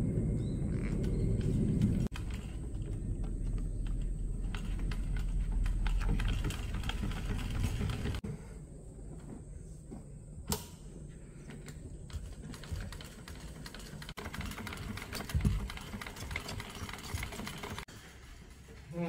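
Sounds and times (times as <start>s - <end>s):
sewing machine clatter: 1.4s - 8.2s, 12.1s - 17.9s.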